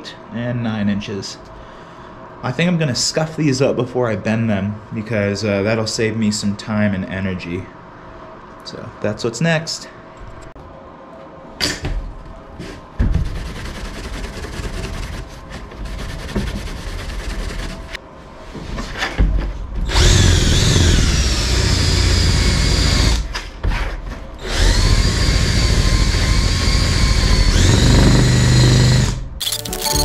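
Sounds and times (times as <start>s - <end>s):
cordless drill motor whining: 19.9s - 23.2s, 24.4s - 29.2s.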